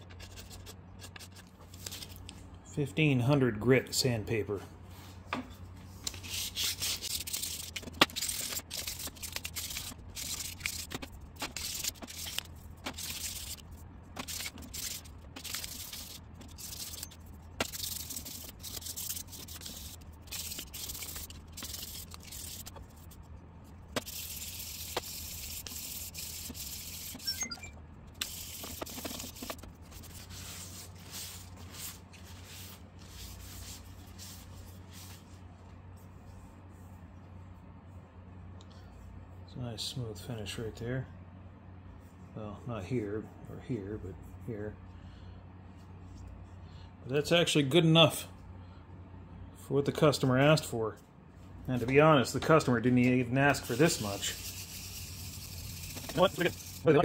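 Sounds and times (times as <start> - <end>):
steady low hum: 0.0 - 57.0
sandpaper rasping: 6.1 - 23.2, 24.0 - 27.3, 28.2 - 35.1, 53.5 - 57.0.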